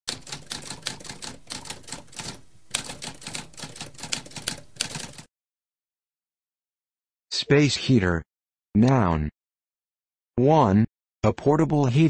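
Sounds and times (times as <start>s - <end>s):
typewriter keys clacking: 0.1s - 5.3s.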